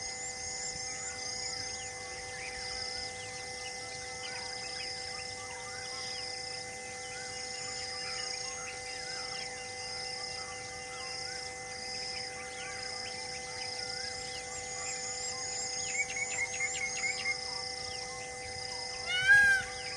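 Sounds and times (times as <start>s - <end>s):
high insect drone: 0.0s - 19.9s
birds chirping and calling: 19.0s - 19.9s
repeated high bird call: 19.0s - 19.9s.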